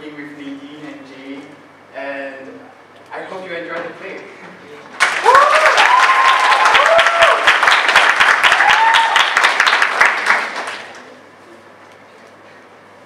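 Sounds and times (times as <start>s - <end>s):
people whooping: 5.0s - 9.7s
audience applauding: 5.0s - 11.1s.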